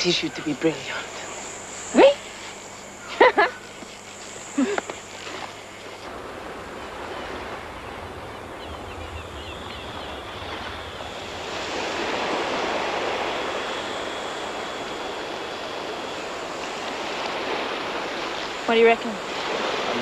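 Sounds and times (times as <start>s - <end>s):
ocean surf washing onto beach: 4.3s - 20.0s.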